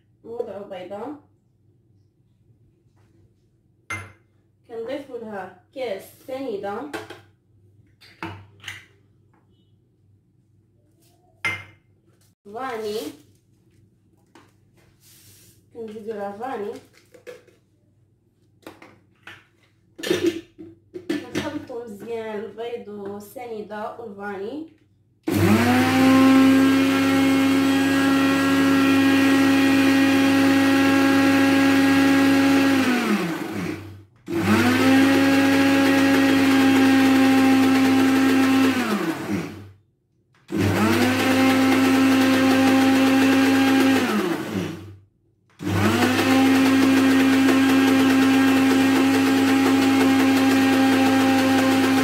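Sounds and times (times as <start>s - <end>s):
blender motor humming: 25.3s - 39.7s, 40.5s - 45.0s, 45.6s - 52.0s.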